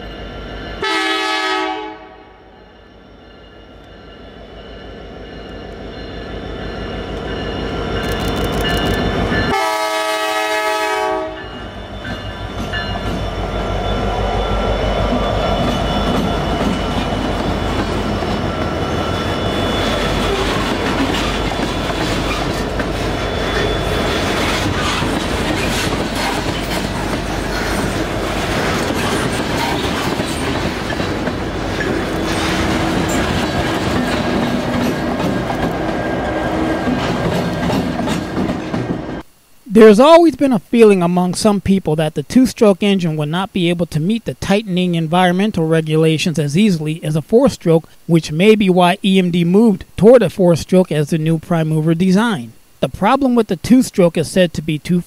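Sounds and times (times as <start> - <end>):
train engine and wheel rumble: 0.0 - 39.4
locomotive horn blast: 0.8 - 2.5, 9.5 - 11.6
wheels clacking over rail joints: 19.7 - 39.1.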